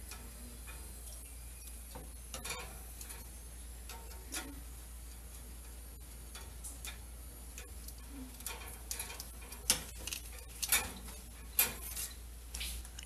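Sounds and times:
metal utensil clicking on grill rack: 1.9 - 12.1.

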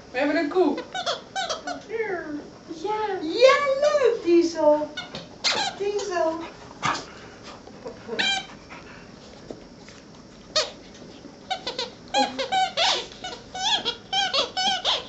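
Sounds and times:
puppy squealing and yelping: 11.6 - 15.0.

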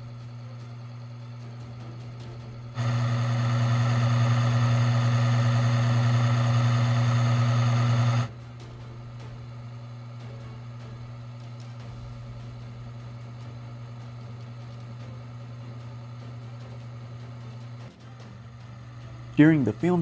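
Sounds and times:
electric motor humming: 0.0 - 8.4, 13.4 - 20.0
grinding whining noise: 0.0 - 8.4, 12.5 - 20.0.

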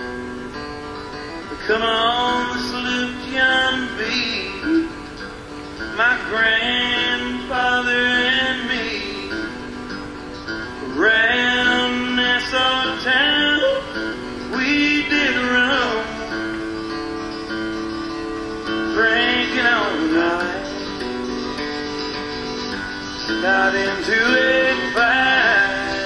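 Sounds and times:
guitar: 0.0 - 26.0
man singing: 1.5 - 5.2, 5.8 - 9.8, 10.8 - 16.7, 18.7 - 21.2, 23.3 - 26.0.

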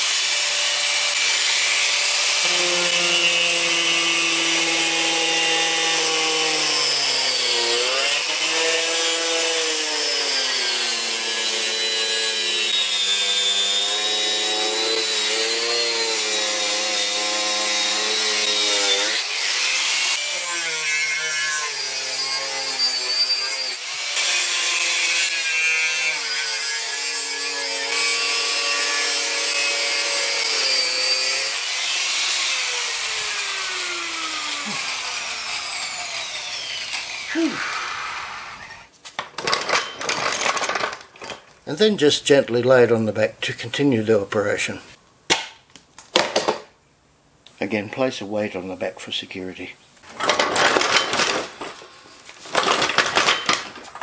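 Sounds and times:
angle grinder cutting: 0.0 - 38.9.

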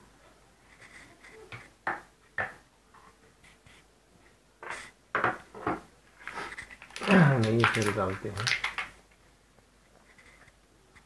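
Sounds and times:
clicks handling plastic case: 6.6 - 8.9.

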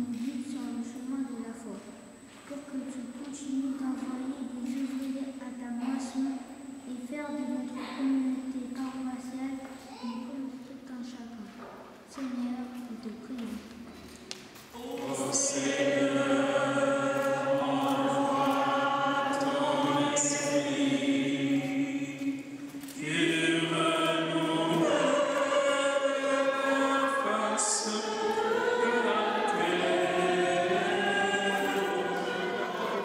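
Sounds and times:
choir singing a hymn: 14.7 - 33.0.

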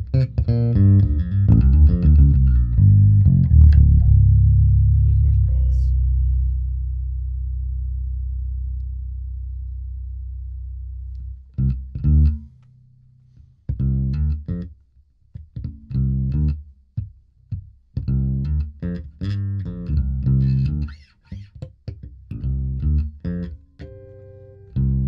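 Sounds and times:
electric bass through amp: 0.0 - 14.8, 15.4 - 25.0.

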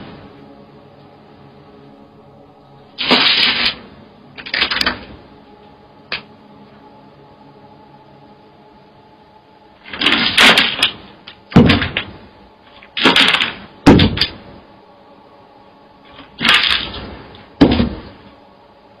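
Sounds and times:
heavy bangs: 3.0 - 5.3, 9.8 - 14.6, 16.1 - 18.3.

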